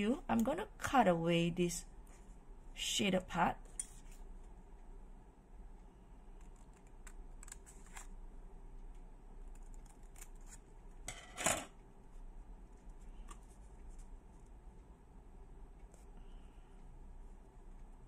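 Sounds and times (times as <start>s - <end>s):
scissors snipping paper: 6.4s - 8.1s, 9.5s - 10.7s.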